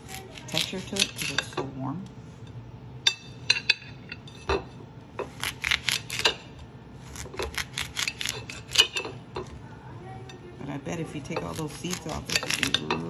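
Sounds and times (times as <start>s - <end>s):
knife slicing watermelon: 7.0s - 8.8s, 11.4s - 13.0s.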